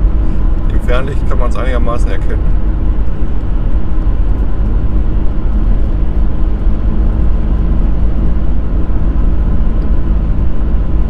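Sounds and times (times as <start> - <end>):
van engine and tyre rumble: 0.0 - 11.0.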